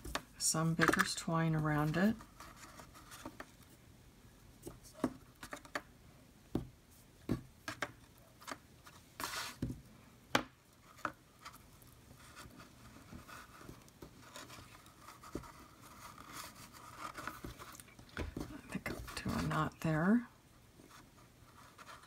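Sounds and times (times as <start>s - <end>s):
twine rubbing and rustling: 0.0s - 3.8s, 10.8s - 20.2s.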